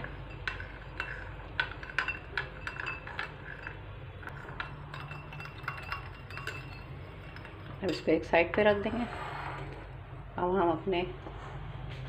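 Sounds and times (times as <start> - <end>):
metal spoon clinking in ceramic bowl: 0.0 - 8.8.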